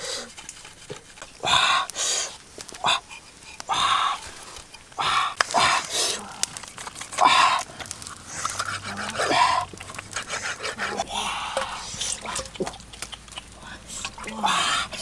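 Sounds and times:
knife scraping hide: 0.0 - 1.5, 8.3 - 11.1.

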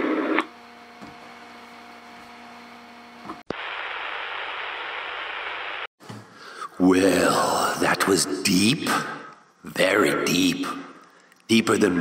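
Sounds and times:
static hiss: 3.5 - 5.9.

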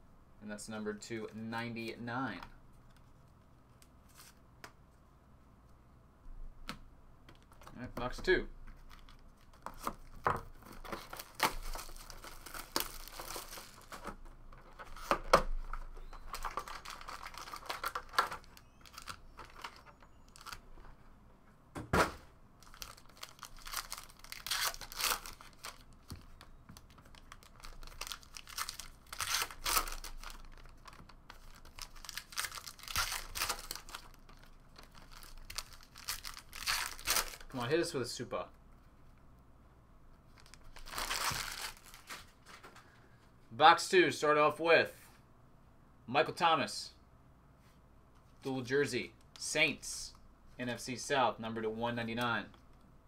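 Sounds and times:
foil packs tearing and crinkling: 10.8 - 14.1, 16.1 - 19.8, 22.6 - 25.9, 27.1 - 37.5, 40.4 - 42.3.

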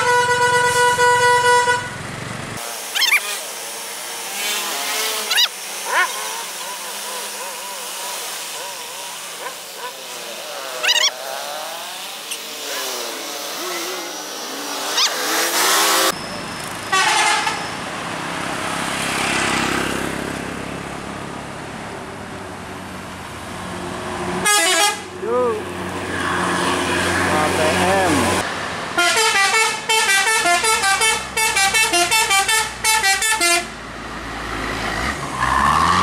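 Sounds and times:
multi-tone bus horn blasts: 0.0 - 2.0, 16.9 - 17.7, 24.4 - 25.2, 29.0 - 33.8
bus engine driving past: 11.8 - 24.4.

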